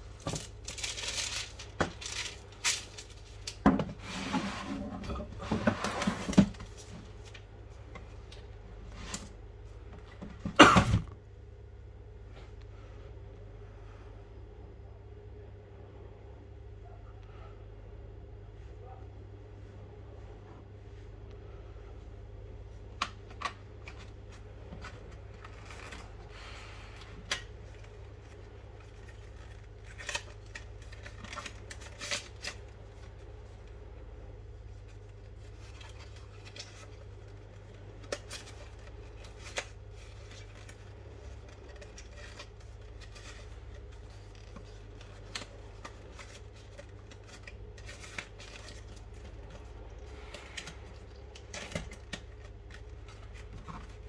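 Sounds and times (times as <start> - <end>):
cardboard packaging handled: 0.0 - 7.5, 23.3 - 33.8, 34.6 - 54.0
faint low hum: 0.0 - 54.0.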